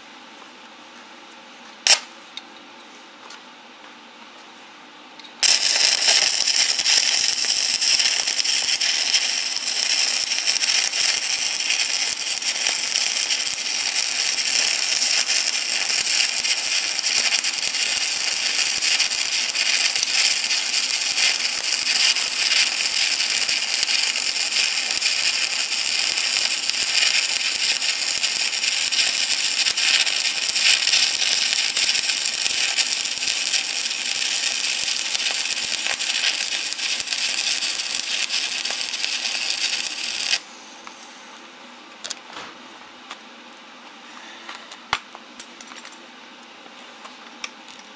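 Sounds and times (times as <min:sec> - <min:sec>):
welding arc crackling: 0:01.8 - 0:02.1, 0:05.4 - 0:41.0.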